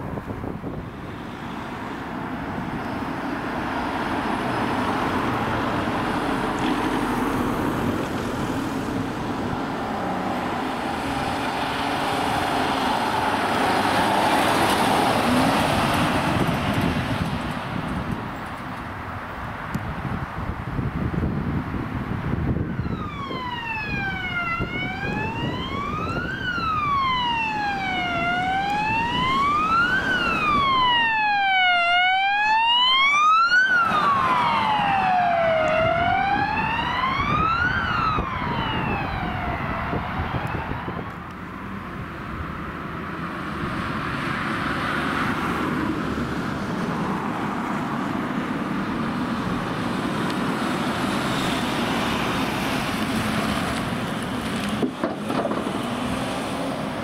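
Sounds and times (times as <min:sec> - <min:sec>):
vehicle engine and road noise: 0:00.0 - 0:57.0
electronic wail siren: 0:22.5 - 0:41.2.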